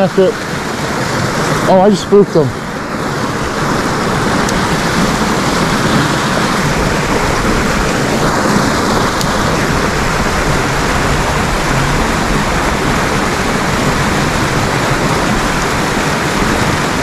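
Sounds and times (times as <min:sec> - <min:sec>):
creek water rushing: 0:00.0 - 0:17.0.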